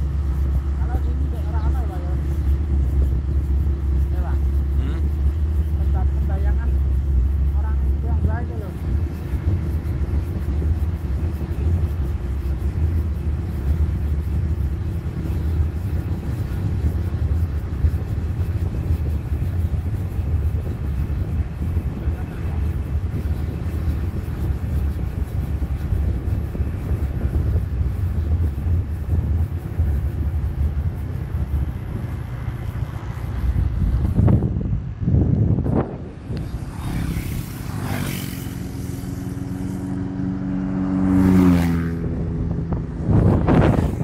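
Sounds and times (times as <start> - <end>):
moving vehicle rumble: 0.0 - 44.0.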